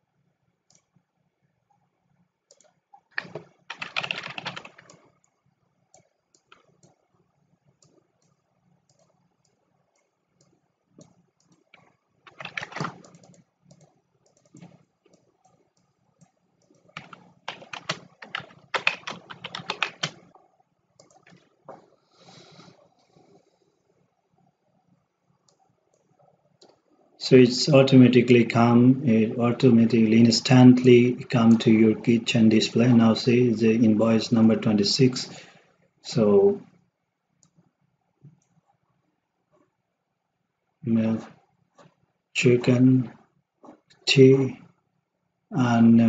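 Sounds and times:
computer keyboard typing: 2.5s - 7.1s, 7.7s - 21.9s.

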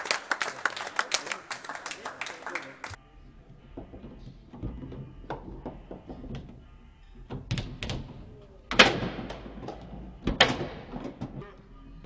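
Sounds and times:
foosball ball clacking: 7.4s - 11.4s.

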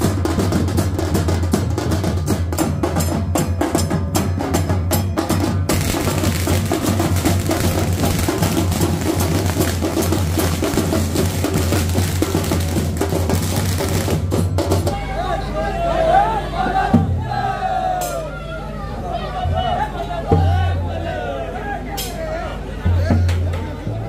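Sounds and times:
drums beating fast rhythm: 0.0s - 15.2s.

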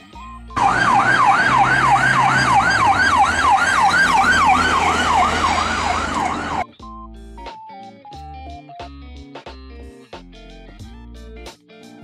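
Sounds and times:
ambulance siren yelping: 0.6s - 6.6s
low vehicle rumble: 0.6s - 6.6s.

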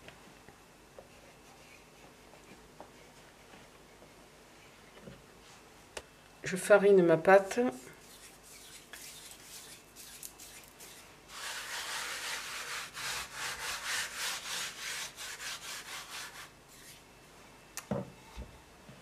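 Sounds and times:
hand rubbing flour over dough: 1.0s - 4.2s, 7.8s - 17.0s.

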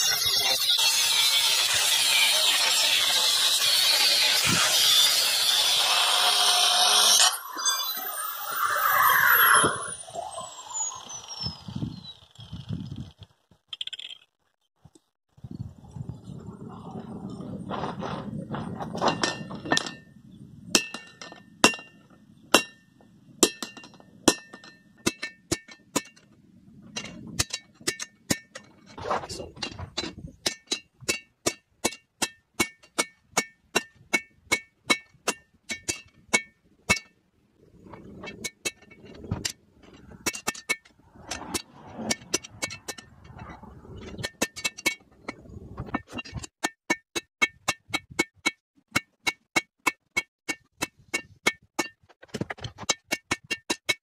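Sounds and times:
hammer striking steel on anvil: 20.7s - 26.2s.

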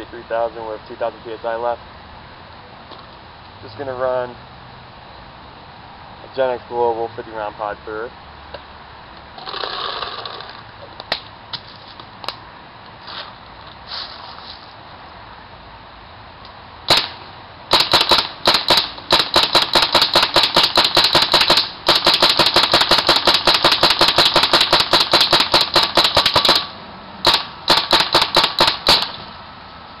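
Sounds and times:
paintball marker shots: 16.9s - 29.2s.

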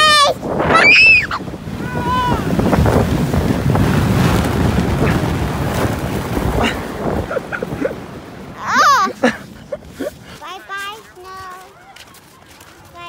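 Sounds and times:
wind buffeting microphone: 0.0s - 13.0s
sled hissing over snow: 0.6s - 11.4s.

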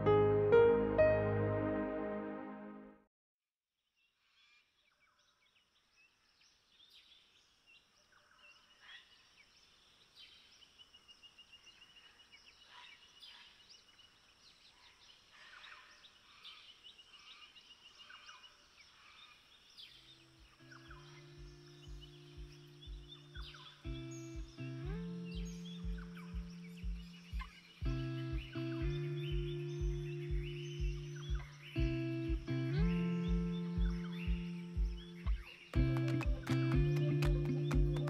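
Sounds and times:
birds chirping: 8.1s - 38.0s
music with low beat: 21.3s - 38.0s.

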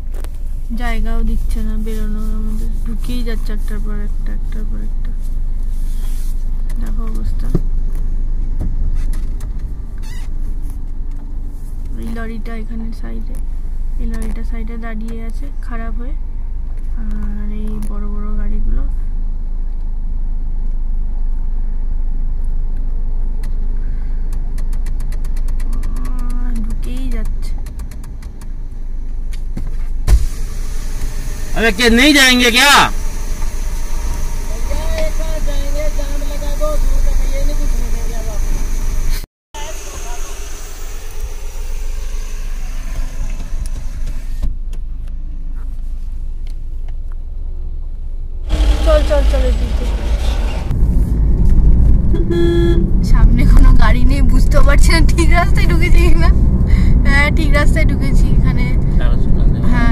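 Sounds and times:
road hiss: 0.0s - 6.7s, 28.5s - 44.6s, 48.4s - 51.3s
car engine rumble: 0.0s - 59.9s
road noise: 0.0s - 59.9s.

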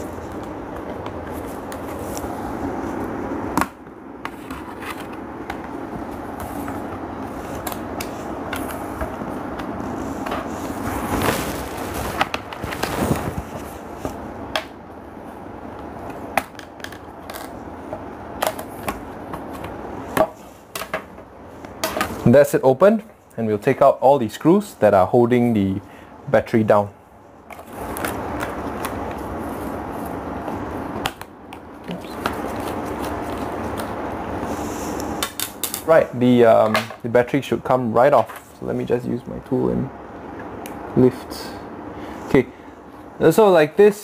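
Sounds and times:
scraping rustle: 9.8s - 14.2s.

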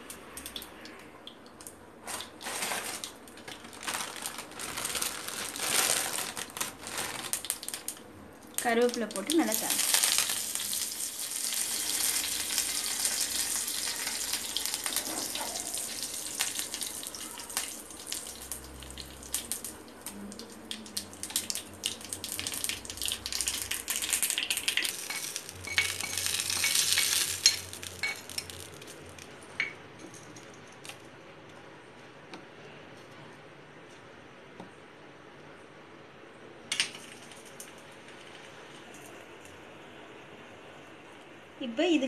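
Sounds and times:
seeds sizzling and crackling in hot oil: 1.6s - 29.7s.

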